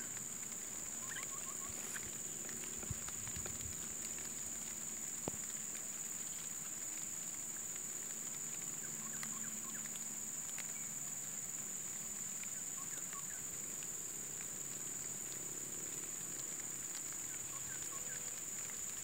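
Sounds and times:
bird chirps: 1.0 - 2.2.

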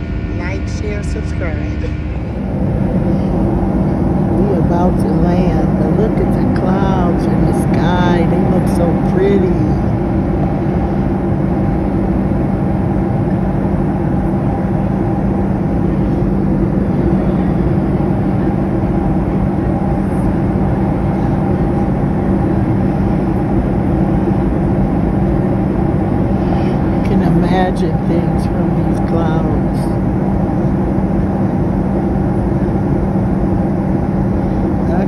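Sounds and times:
rushing air: 0.0 - 4.6
airliner engine drone: 0.0 - 35.0
low hum: 0.0 - 35.0.

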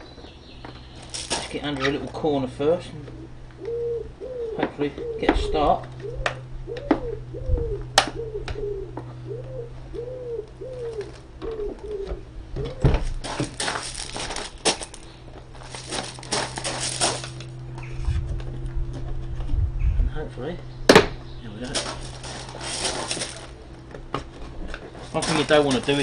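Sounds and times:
pigeon cooing: 2.9 - 13.2
rubber strip scraping and rustling: 21.7 - 23.6.

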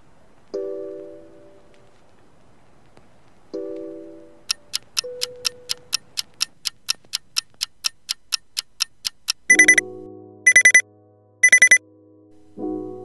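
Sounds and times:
clock ticking: 4.4 - 9.8, 10.5 - 10.8, 11.4 - 11.8
alarm clock beeping: 4.5 - 6.1, 9.5 - 9.8, 10.5 - 10.8, 11.4 - 11.8.

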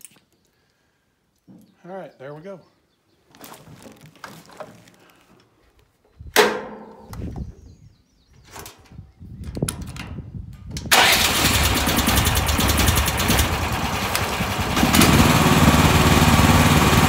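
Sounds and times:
plastic seat cover rustling: 3.3 - 5.3.

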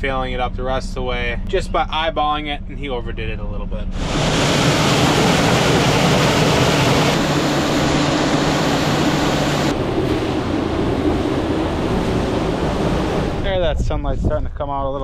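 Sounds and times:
vehicle engine running: 0.0 - 13.8
dense rushing noise: 3.9 - 14.6.

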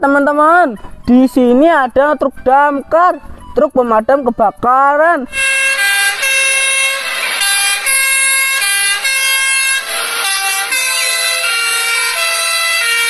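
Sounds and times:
two-tone fire engine siren: 5.3 - 13.0.

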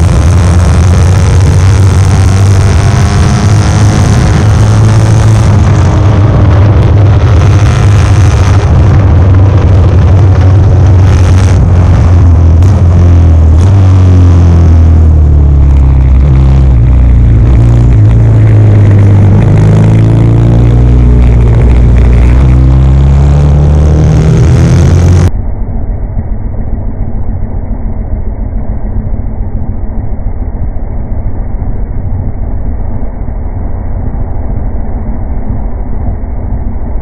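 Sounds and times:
motorcycle engine at racing revs: 0.0 - 25.3
muffled rough rumble: 0.0 - 37.0.

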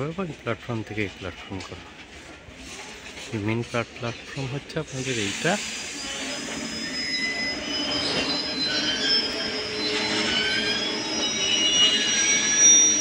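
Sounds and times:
train moving: 0.0 - 13.0
train wheels squealing on rails: 0.7 - 13.0.

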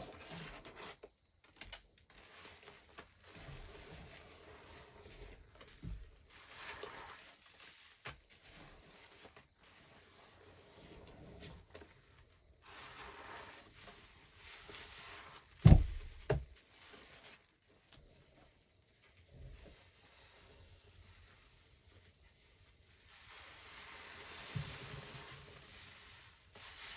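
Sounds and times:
sponge squelching in soapy paste: 0.0 - 1.1, 2.0 - 26.9
sponge wet thumps: 14.8 - 16.6.

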